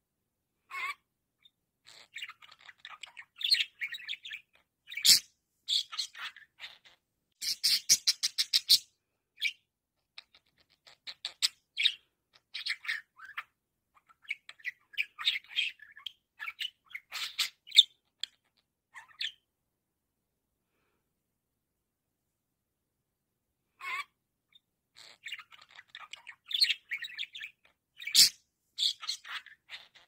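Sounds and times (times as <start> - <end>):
budgerigar chattering: 1.9 - 8.8.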